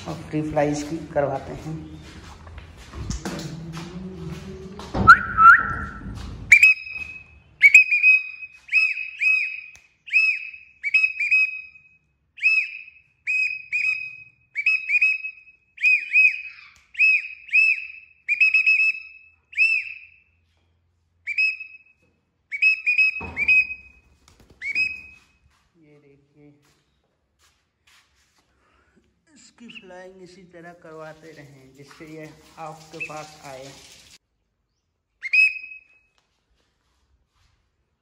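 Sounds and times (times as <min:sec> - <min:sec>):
person whistling: 0:05.1 - 0:07.0, 0:07.6 - 0:11.6, 0:24.6 - 0:25.2, 0:35.2 - 0:35.9.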